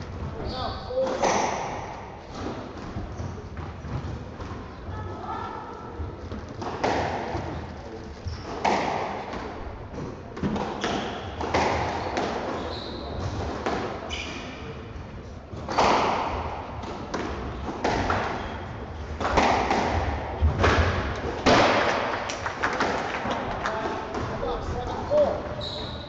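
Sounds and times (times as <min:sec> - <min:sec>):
squash ball hits: 0:01.0 - 0:05.0, 0:06.0 - 0:07.7, 0:08.3 - 0:14.5, 0:15.5 - 0:24.8
shoes squeaking on court: 0:02.8 - 0:04.9, 0:07.4 - 0:08.8, 0:10.7 - 0:13.4, 0:14.0 - 0:14.9, 0:17.4 - 0:18.9, 0:25.5 - 0:26.0.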